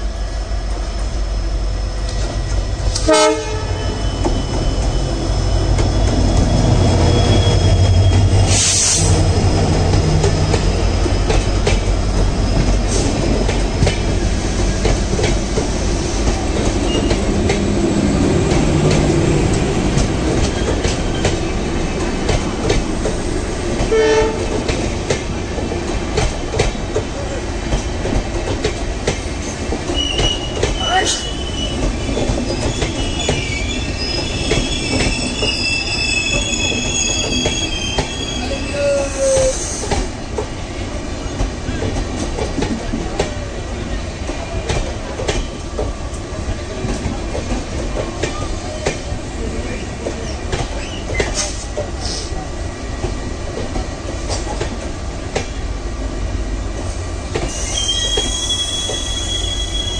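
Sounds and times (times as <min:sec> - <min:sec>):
train wheels clicking on rails: 0:00.0 - 0:59.9
train wheels squealing: 0:01.0 - 0:14.8, 0:16.8 - 0:17.3, 0:29.9 - 0:40.0, 0:49.7 - 0:52.4, 0:57.4 - 0:59.9.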